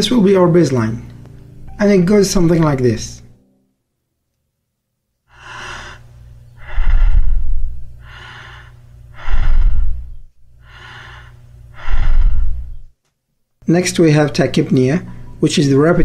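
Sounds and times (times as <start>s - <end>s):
person breathing: 5.3s - 12.9s.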